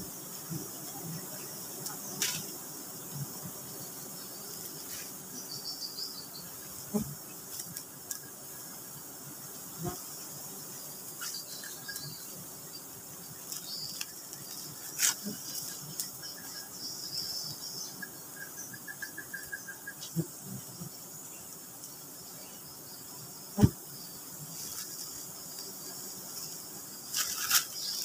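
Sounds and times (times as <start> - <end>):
high insect drone: 0.0 - 28.0
leaves rustling: 13.3 - 16.1, 24.5 - 28.0.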